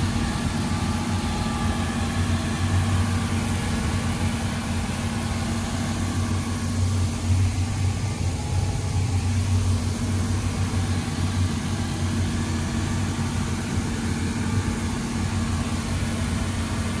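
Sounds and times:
marine diesel engine droning: 0.0 - 17.0.

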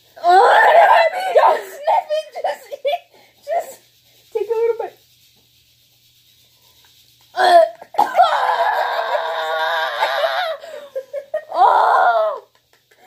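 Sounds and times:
women laughing: 10.0 - 11.6.

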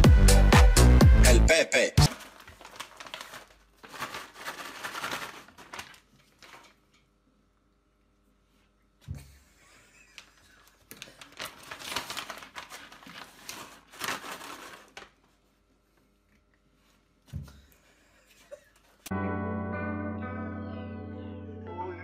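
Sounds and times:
plastic crinkling and rustling: 2.1 - 7.0, 10.2 - 15.6.

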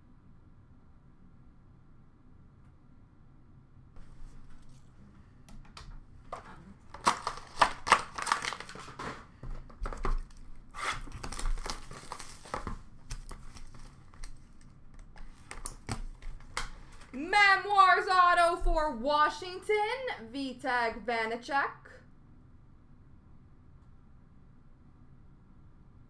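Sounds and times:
plastic wrappers crinkling: 6.3 - 17.2.

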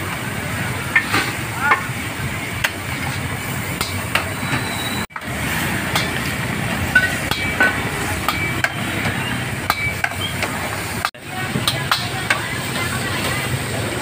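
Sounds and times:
street noise: 0.0 - 14.0
cooking sizzle: 0.1 - 14.0
utensils clinking and knocking: 6.9 - 10.6.

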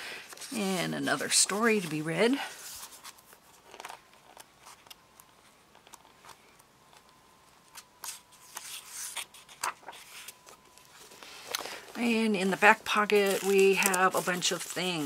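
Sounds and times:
book pages turning: 0.2 - 15.0.

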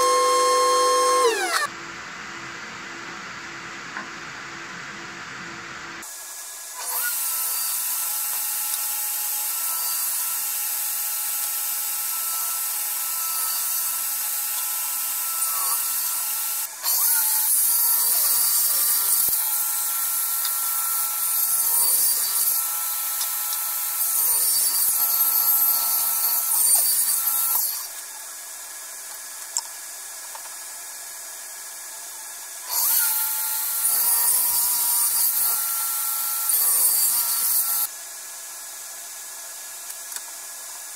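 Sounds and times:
saw blade cutting wood: 0.0 - 1.7, 6.0 - 28.3, 32.6 - 37.9
table saw whine: 0.0 - 1.8, 6.0 - 28.6, 31.6 - 37.9.

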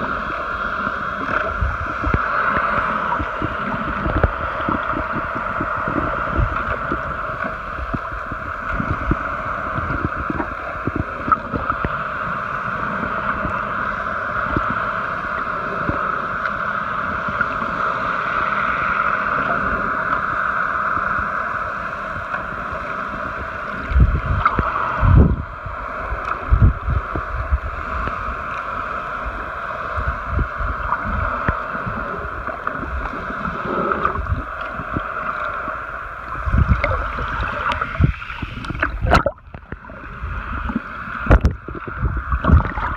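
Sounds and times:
underwater water hiss: 0.0 - 42.9
water gurgling: 0.0 - 42.9
low underwater thumps: 38.7 - 39.8.

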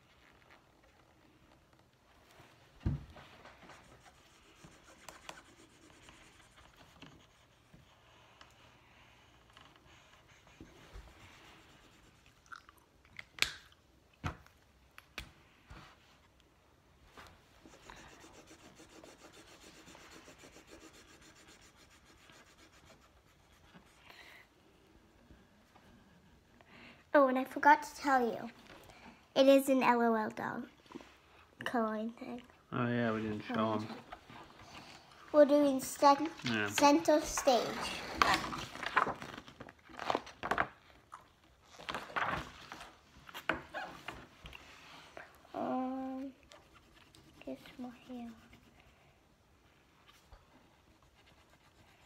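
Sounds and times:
marker scribbling on paper: 3.6 - 8.0, 9.9 - 12.2, 17.6 - 24.0, 50.9 - 52.0
paper rustling: 36.2 - 40.7, 41.8 - 44.2.

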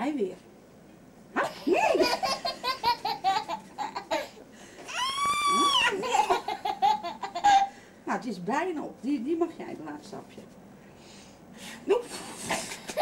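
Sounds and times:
toddler laughing: 1.6 - 7.7
toddler squealing: 4.9 - 6.3.

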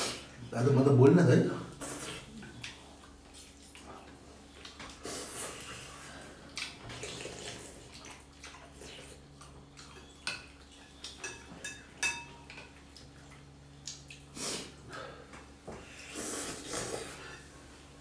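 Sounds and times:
cutlery clinking on ceramic bowls: 10.0 - 12.8
slurping noodles: 16.0 - 17.4.

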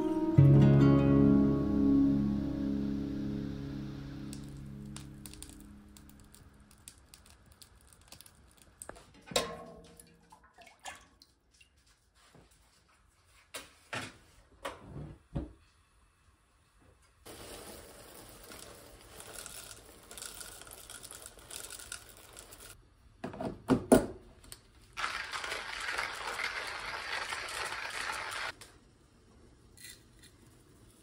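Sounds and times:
coffee grinder crunching beans: 4.2 - 8.9, 17.3 - 22.8, 25.0 - 28.6.

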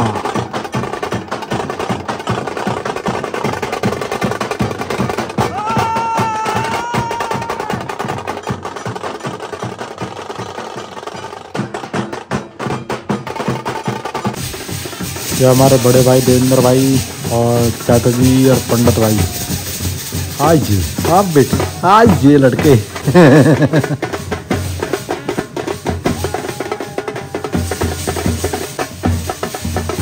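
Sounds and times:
drums beaten fast with sticks: 0.0 - 30.0
held high note: 25.9 - 28.6.

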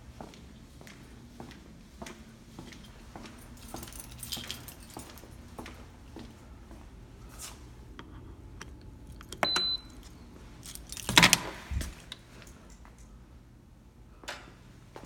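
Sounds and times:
card reader beep: 9.4 - 10.3.

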